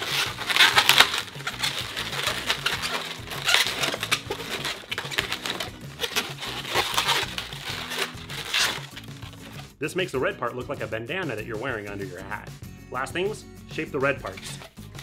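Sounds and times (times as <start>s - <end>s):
balloons rubbing and squeaking: 0.0s - 9.7s.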